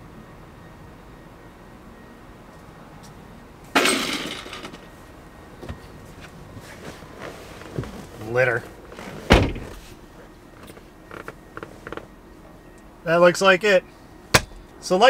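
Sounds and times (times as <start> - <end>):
loud clattering impact: 3.8 - 4.9.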